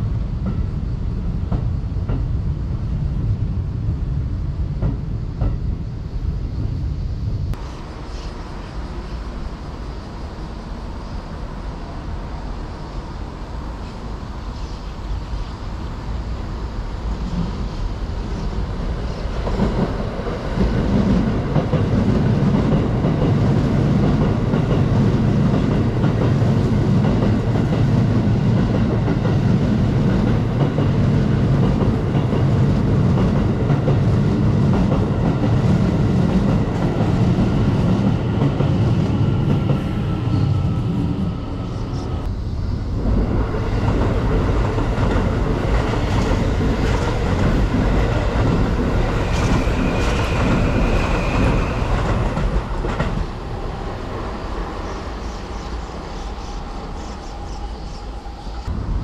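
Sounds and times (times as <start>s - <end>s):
train rumble: 0.0s - 59.0s
train wheels clattering over rails: 18.9s - 40.3s, 43.1s - 53.4s.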